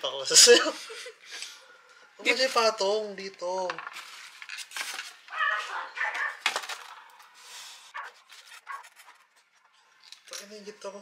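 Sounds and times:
styrofoam squeaking: 0:08.0 - 0:09.4.

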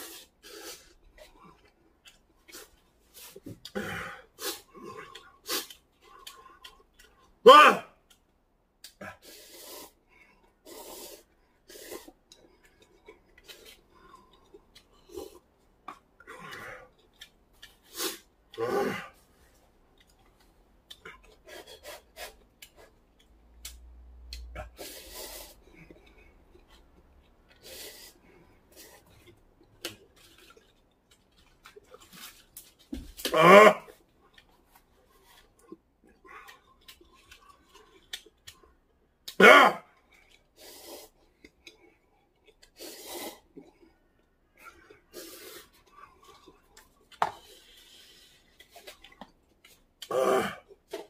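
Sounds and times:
person slurping noodles: 0:00.0 - 0:01.4, 0:02.5 - 0:05.8, 0:09.0 - 0:10.0, 0:10.6 - 0:12.2, 0:17.8 - 0:19.1, 0:24.6 - 0:25.9, 0:40.6 - 0:41.3, 0:42.7 - 0:43.8, 0:45.0 - 0:46.7.

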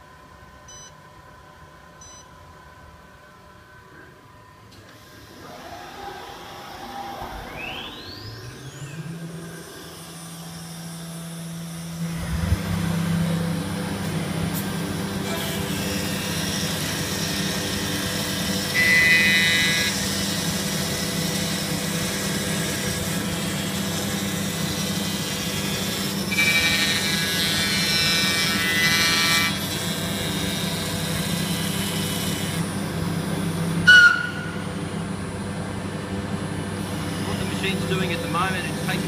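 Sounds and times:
high-pitched cutter whine: 0:04.8 - 0:35.2, 0:36.5 - 0:39.0
router spindle and dust extraction: 0:05.2 - 0:17.9
brief sharp squeal: 0:33.9 - 0:34.6.

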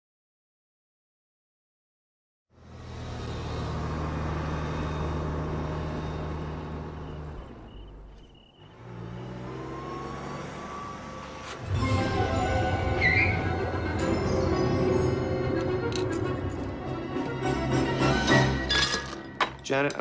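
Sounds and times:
car engine running: 0:02.6 - 0:11.6.

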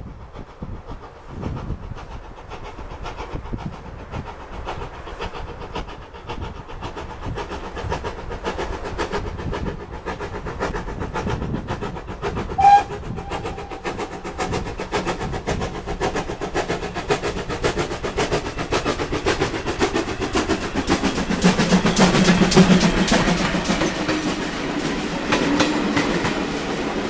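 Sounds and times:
steam locomotive exhaust beats: 0:00.0 - 0:27.0
steam whistle blast: 0:12.6 - 0:13.9.

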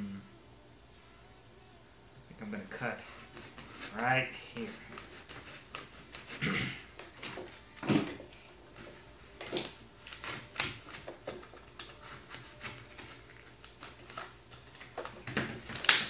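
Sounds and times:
cardboard being cut by hand: 0:03.0 - 0:08.0, 0:08.8 - 0:14.3.

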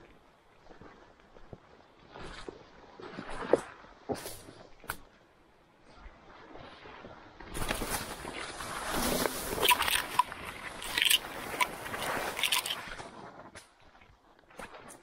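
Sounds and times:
branches brushing and scraping: 0:07.6 - 0:13.5
twigs cracking and snapping: 0:09.6 - 0:13.0.

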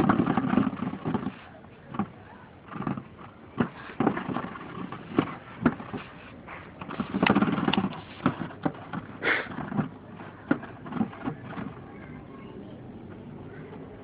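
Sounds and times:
plastic stool knocking: 0:00.0 - 0:06.1.

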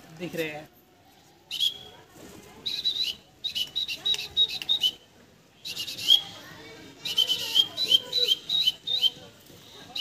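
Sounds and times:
whistle blasts: 0:01.5 - 0:01.9, 0:02.7 - 0:05.0, 0:05.6 - 0:06.4.

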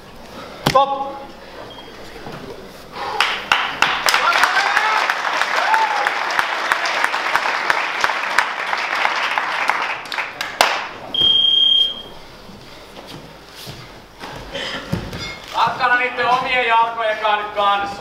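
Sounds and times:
audience applauding: 0:03.2 - 0:11.0
high electronic beep: 0:11.1 - 0:12.1.

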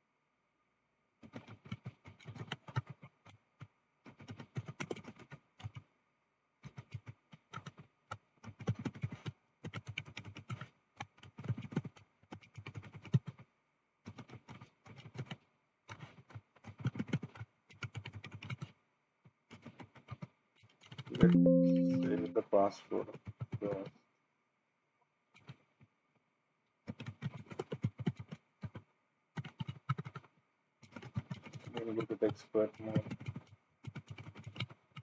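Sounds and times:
computer keyboard typing: 0:04.1 - 0:05.8, 0:08.4 - 0:10.7, 0:16.6 - 0:18.7, 0:33.0 - 0:35.0.

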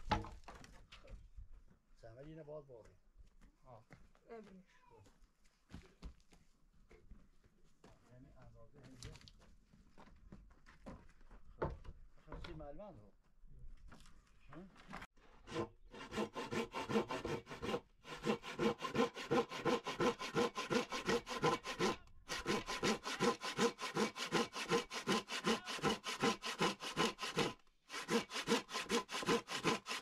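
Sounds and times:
hand saw cutting wood: 0:15.2 - 0:30.0.

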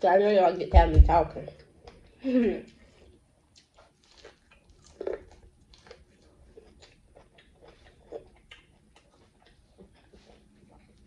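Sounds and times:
biting and chewing corn: 0:03.6 - 0:11.0.

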